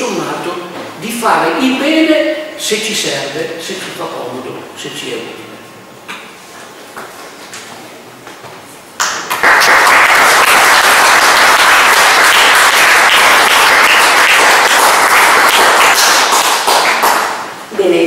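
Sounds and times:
audience applauding: 0:09.0 - 0:17.5.

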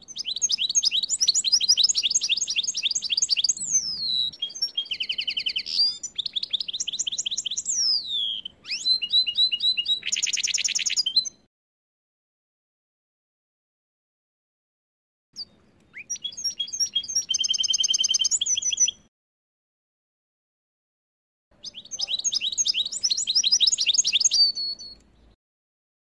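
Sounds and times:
bird singing trills and whistles: 0:00.0 - 0:11.5, 0:15.4 - 0:19.1, 0:21.6 - 0:25.4.

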